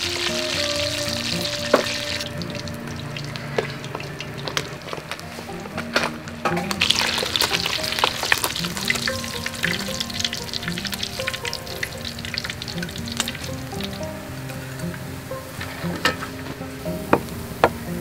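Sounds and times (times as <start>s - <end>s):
fish frying in hot oil: 0.0s - 5.0s, 6.7s - 14.8s
background music: 0.0s - 18.0s.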